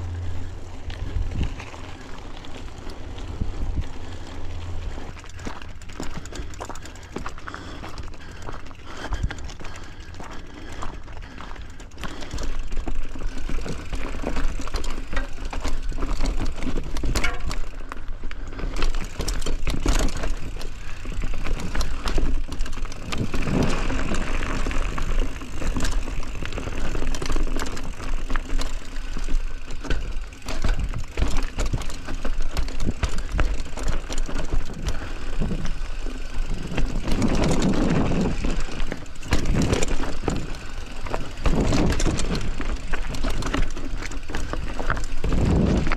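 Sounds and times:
wind rumble on microphone: 0.0s - 5.0s, 36.5s - 40.6s, 44.8s - 45.9s
bike rattling and clicking: 0.0s - 45.9s
bike tyres on dirt: 0.0s - 45.9s.

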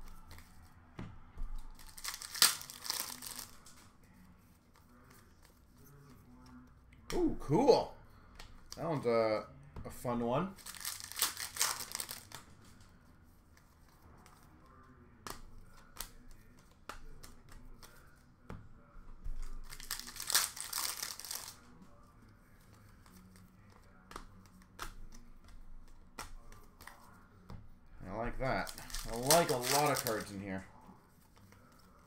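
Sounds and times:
cards clicking and tapping: 0.0s - 3.8s, 10.6s - 12.5s, 15.2s - 21.7s, 22.6s - 30.4s
wrappers crinkling and tearing: 1.6s - 3.8s, 10.6s - 12.4s, 19.5s - 21.7s, 28.4s - 30.6s.

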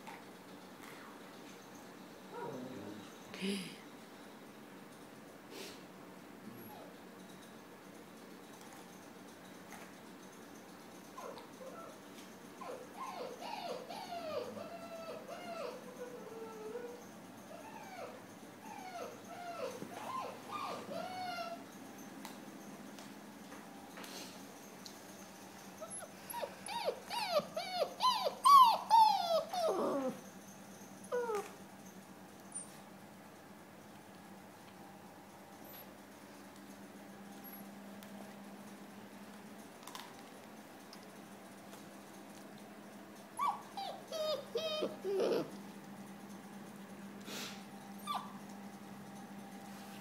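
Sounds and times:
puppy whimpering: 2.3s - 3.0s, 11.2s - 12.0s, 12.6s - 21.6s, 25.8s - 30.3s, 31.0s - 31.6s, 43.4s - 45.6s, 48.0s - 48.4s.

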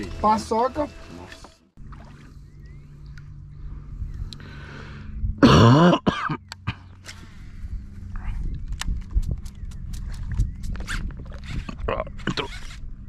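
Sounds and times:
steady low hum: 1.8s - 13.0s
person clearing throat: 5.4s - 6.4s
sharp clicks: 8.5s - 12.8s.

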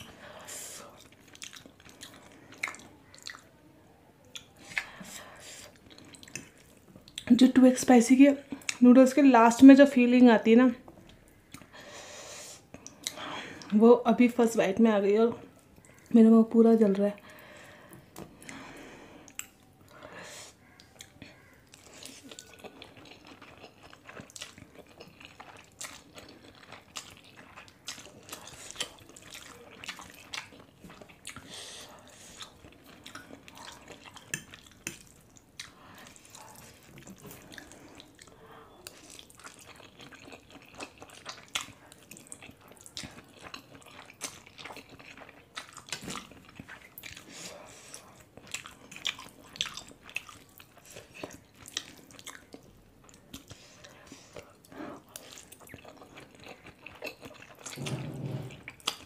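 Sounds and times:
wet chewing and slurping: 0.0s - 3.5s, 4.3s - 7.3s, 19.2s - 59.0s.

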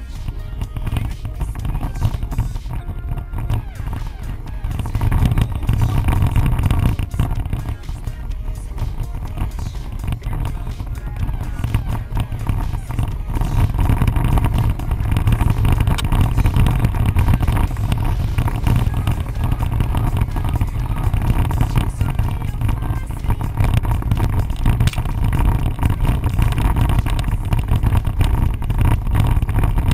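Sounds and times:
car engine running: 0.0s - 29.9s
vehicle jostling over rough ground: 0.0s - 29.9s.

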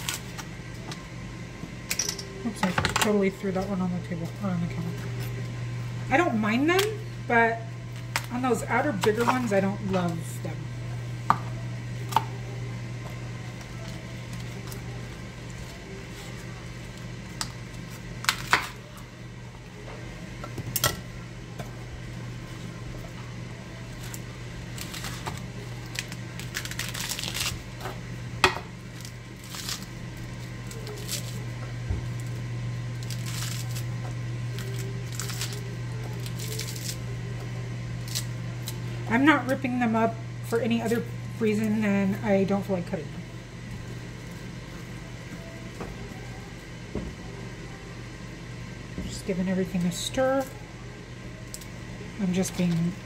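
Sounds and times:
steady low hum: 0.0s - 53.0s
lettuce leaves tearing: 13.5s - 18.8s, 23.7s - 27.9s, 28.9s - 31.6s, 32.2s - 37.2s, 38.0s - 38.9s.

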